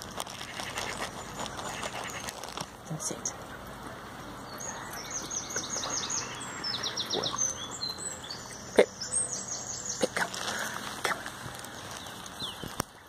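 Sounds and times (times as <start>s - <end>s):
small songbird singing: 4.3s - 13.0s.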